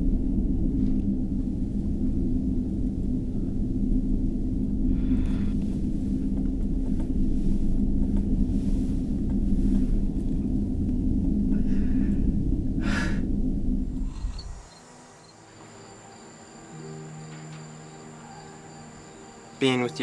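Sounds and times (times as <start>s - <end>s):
low rumbling drone: 0.0s - 20.0s
man breathing sharply: 11.5s - 13.3s.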